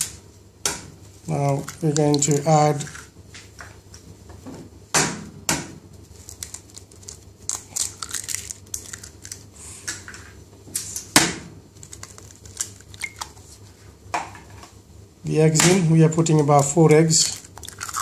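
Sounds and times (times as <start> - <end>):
eggshell crackling: 1.3 - 3.1, 6.2 - 9.6, 11.7 - 13.4, 17.2 - 18.0.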